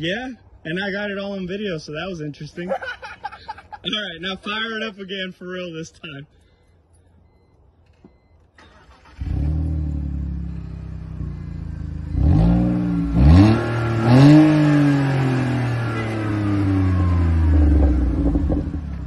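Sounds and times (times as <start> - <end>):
car engine starting and revving: 8.1 - 19.0.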